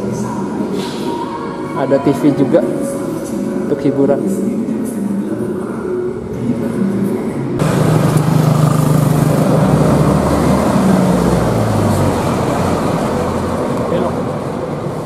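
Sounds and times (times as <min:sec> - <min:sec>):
bus driving past: 0:07.6 - 0:15.0.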